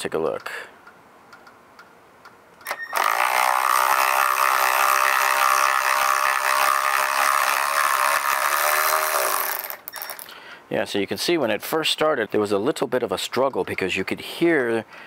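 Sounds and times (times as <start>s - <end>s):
cordless ratchet motor running: 2.7s - 10.2s
screw unscrewing from wood: 2.7s - 10.3s.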